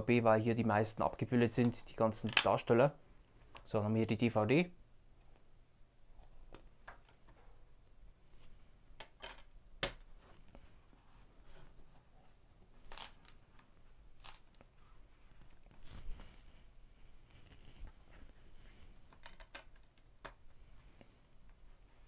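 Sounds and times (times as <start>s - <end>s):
soft rustles and scrapes: 10.2s - 19.3s.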